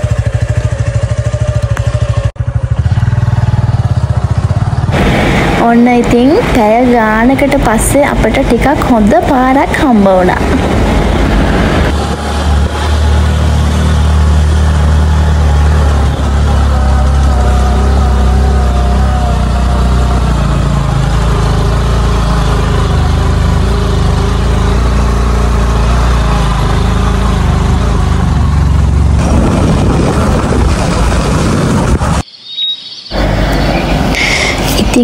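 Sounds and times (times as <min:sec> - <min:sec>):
heavy low rumble: 0:00.0 - 0:32.2
motorcycle engine running: 0:00.0 - 0:32.2.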